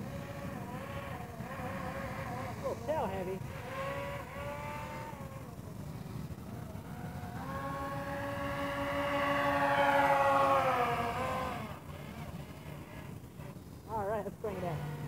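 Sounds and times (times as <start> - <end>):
electric propeller motor whining: 0.0 - 15.0.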